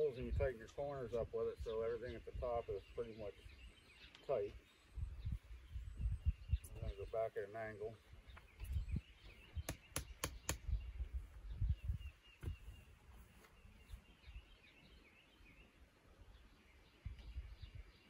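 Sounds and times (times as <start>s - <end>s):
birds chirping: 0.0s - 18.0s
quick sharp clicks: 9.7s - 10.7s.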